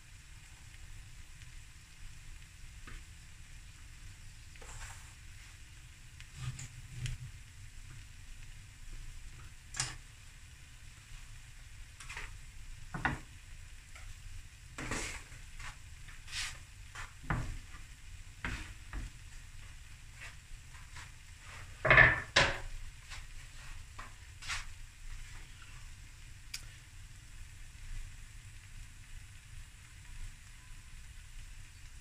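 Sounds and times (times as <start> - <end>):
rice crackling in a pan: 0.0 - 32.0
kitchen things clattering: 21.8 - 22.7.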